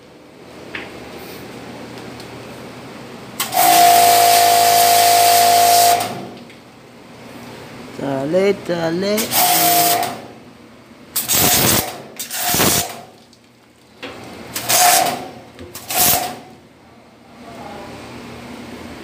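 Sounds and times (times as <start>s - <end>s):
high-pressure sprayer hissing: 9.2s - 10.0s, 11.2s - 12.9s.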